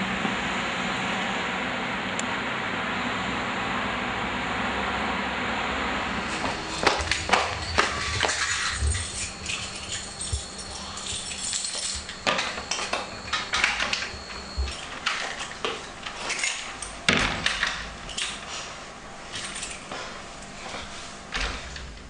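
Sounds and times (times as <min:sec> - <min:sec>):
faint high whine: 0:05.9 - 0:18.4
metallic clattering of grille gate: 0:06.2 - 0:18.6.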